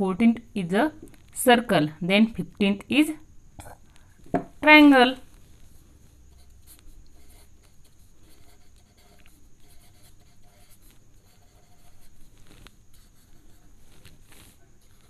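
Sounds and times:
pen scratching on paper: 0:06.3 - 0:15.0.

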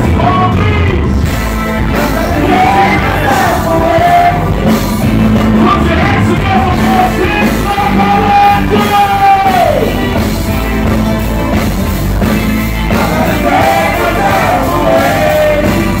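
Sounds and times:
reggae band playing: 0:00.0 - 0:16.0
person singing: 0:01.9 - 0:04.6.

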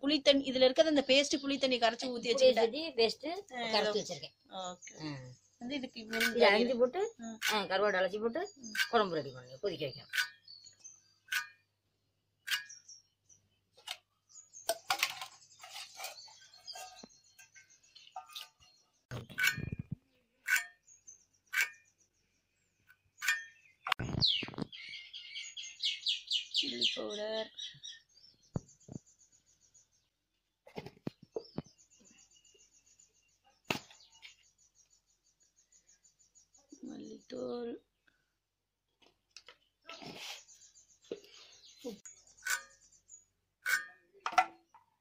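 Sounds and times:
birds chirping faintly: 0:00.0 - 0:45.0
bird chirping fast: 0:03.6 - 0:11.7, 0:23.1 - 0:29.9.

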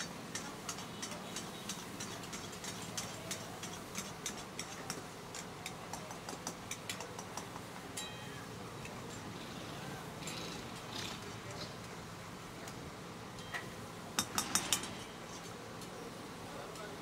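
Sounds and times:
gas burners hissing: 0:00.0 - 0:17.0.

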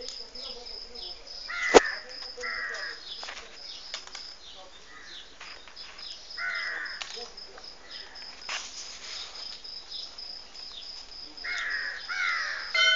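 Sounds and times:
small birds chirping: 0:00.0 - 0:12.8
harsh arching bird calls: 0:00.9 - 0:03.2, 0:04.5 - 0:07.0, 0:11.4 - 0:12.9.

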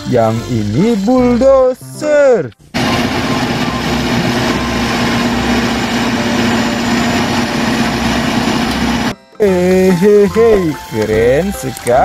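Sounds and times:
bulldozer diesel engine droning: 0:02.6 - 0:11.9.

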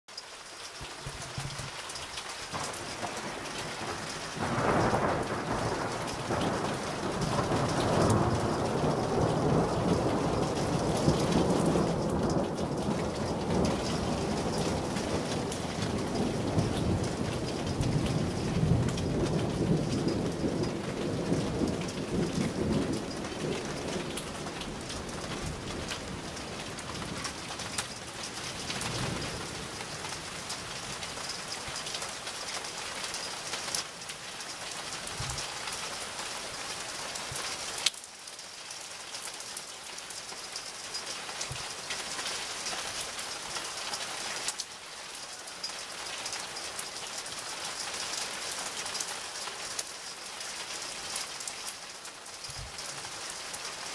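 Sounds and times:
steady rain falling: 0:00.1 - 0:53.9
rolling thunder: 0:02.6 - 0:31.0.

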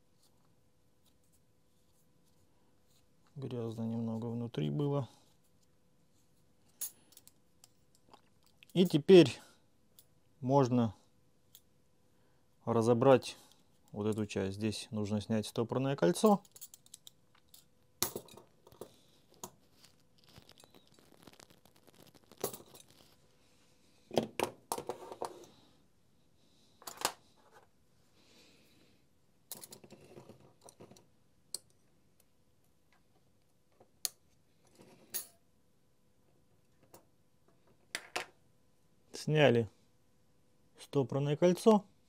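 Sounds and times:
metallic clicks and clinks: 0:16.2 - 0:18.9
tools being handled: 0:16.2 - 0:23.2.

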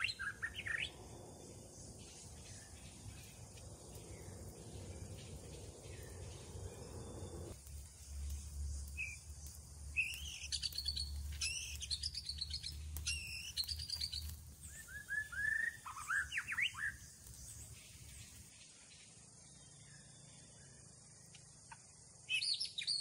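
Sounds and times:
birds chirping: 0:00.0 - 0:20.8
low steady rumble: 0:00.6 - 0:08.9.

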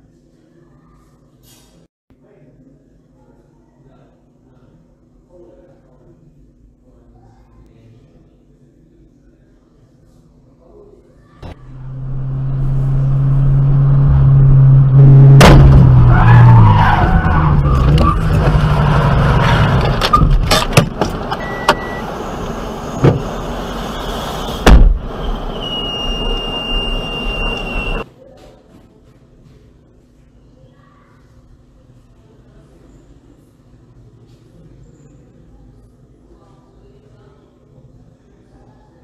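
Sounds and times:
loud low steady tone: 0:11.4 - 0:16.2
vehicle crash: 0:11.4 - 0:28.0
hard impacts: 0:13.8 - 0:16.5, 0:24.6 - 0:25.2
high steady beep: 0:21.4 - 0:22.1, 0:25.5 - 0:28.0.

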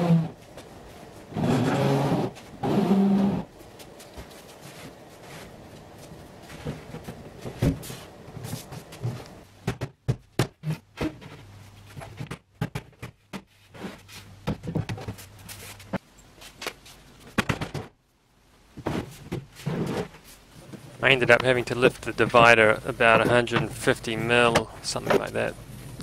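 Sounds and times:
steady low hum: 0:00.0 - 0:09.8, 0:20.3 - 0:26.0.

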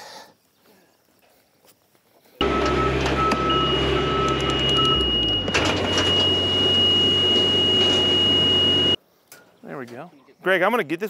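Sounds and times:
motion alarm beeps: 0:02.4 - 0:09.0
scissor lift engine running: 0:02.4 - 0:09.0
steady high-pitched alarm tone: 0:02.4 - 0:09.0.

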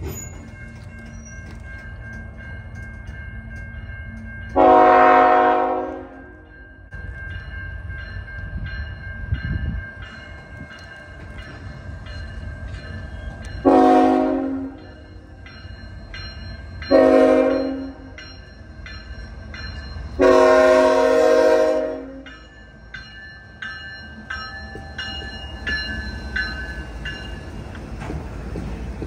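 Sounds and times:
crossing signal bells dinging: 0:00.0 - 0:28.9
train rumble: 0:00.0 - 0:29.0
locomotive air horn: 0:04.6 - 0:06.4, 0:13.6 - 0:14.8, 0:16.9 - 0:18.1, 0:20.2 - 0:22.2.

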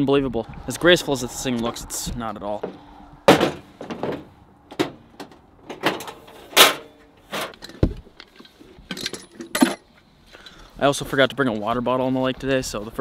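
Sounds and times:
knocks clunks and rustles: 0:02.0 - 0:10.5.

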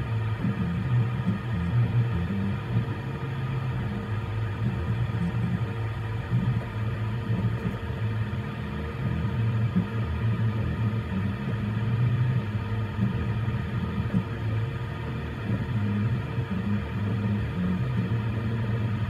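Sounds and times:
stepper motors humming: 0:00.0 - 0:19.0.

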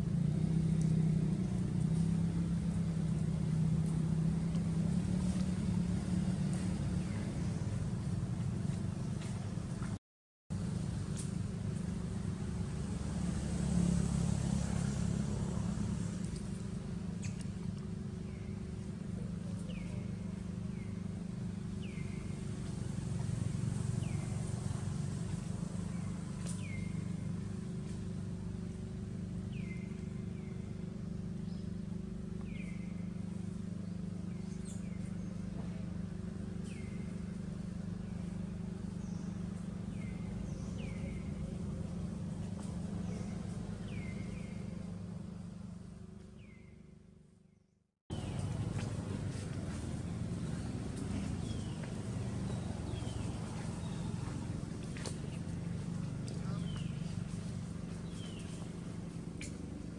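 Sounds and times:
steady low hum: 0:00.0 - 0:59.9.

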